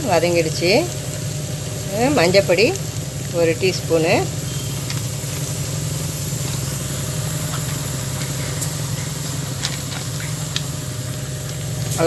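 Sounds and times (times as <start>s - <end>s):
high hiss: 0.0s - 12.0s
low mechanical hum: 0.0s - 12.0s
curry simmering with pops: 0.1s - 12.0s.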